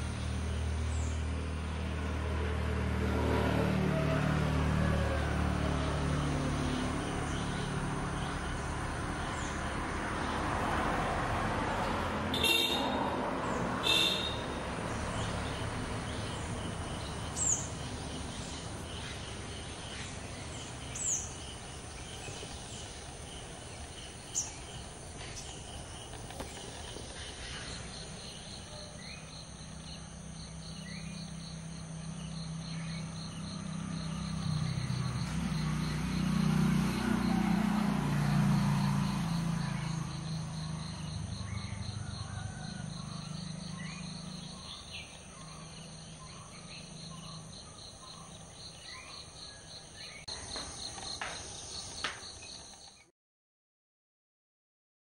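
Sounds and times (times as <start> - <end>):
insects trilling: 13.8 - 37.4.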